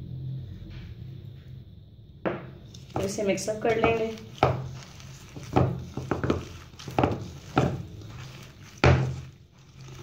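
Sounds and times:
hand squelching mashed potato: 0:02.7 - 0:10.0.

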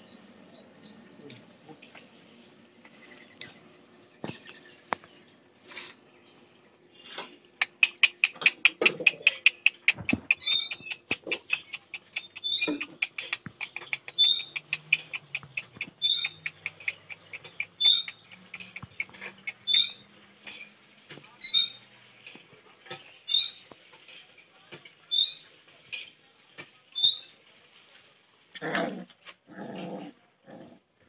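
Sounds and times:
small animal chirping: 0:07.6 - 0:20.6.

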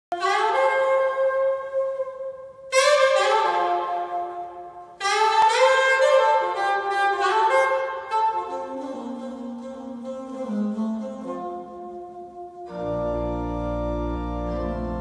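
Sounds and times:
sustained music chords: 0:06.1 - 0:15.0.

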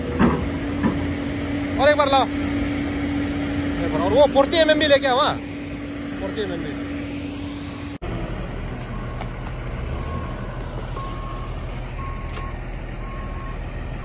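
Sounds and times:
diesel engine running: 0:00.0 - 0:14.0
reversing alarm beeps: 0:11.0 - 0:13.6.

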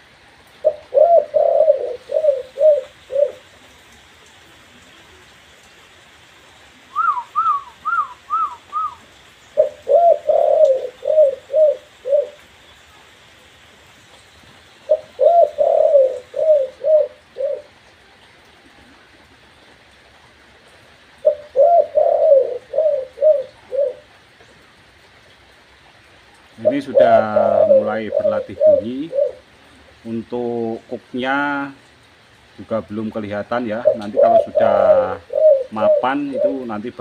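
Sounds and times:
dove cooing: 0:00.6 - 0:03.7, 0:06.8 - 0:12.4, 0:14.9 - 0:17.8, 0:18.5 - 0:19.4, 0:21.2 - 0:24.2, 0:26.4 - 0:31.2, 0:33.5 - 0:37.0.

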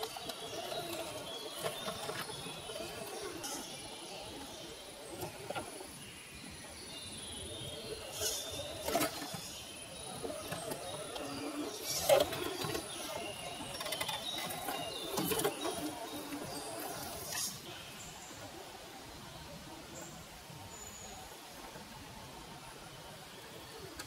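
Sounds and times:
toy car motor rumbling: 0:00.0 - 0:18.7.

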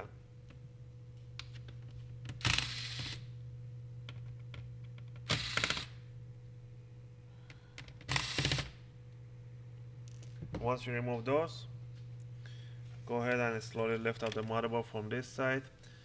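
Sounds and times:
electric screwdriver clicking: 0:05.2 - 0:06.0.

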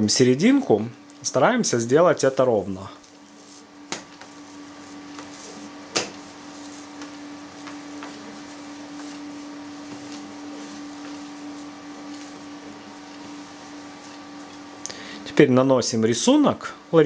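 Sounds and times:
steady low hum: 0:00.0 - 0:17.0
hands pressing dough: 0:03.8 - 0:14.6.

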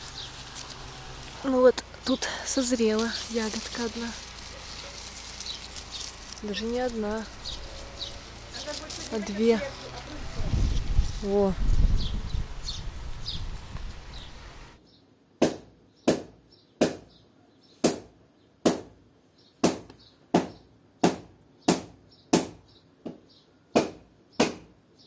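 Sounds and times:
birds chirping: 0:00.0 - 0:15.1.

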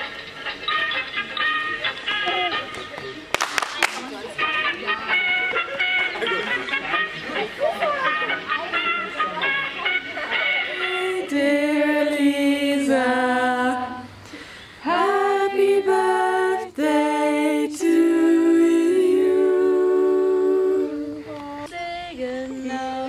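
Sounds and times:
women singing a cappella: 0:10.9 - 0:23.0.

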